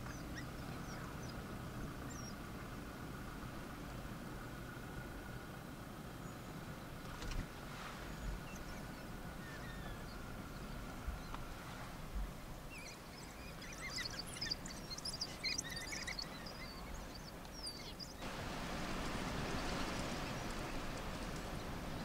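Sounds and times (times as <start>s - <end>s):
wild dogs twittering chirps: 12.7s - 18.2s
steady hiss: 18.2s - 22.0s.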